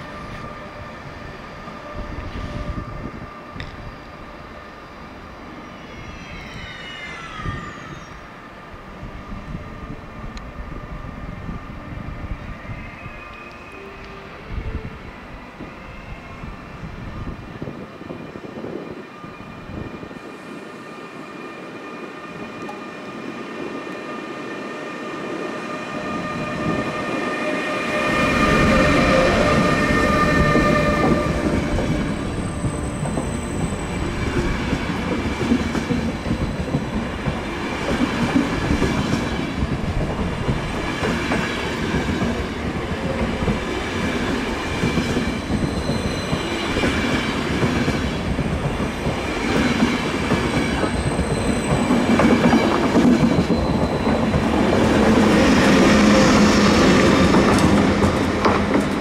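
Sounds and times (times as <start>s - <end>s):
train wheels rumbling: 21.6s - 59.0s
clickety-clack over rails: 28.0s - 59.0s.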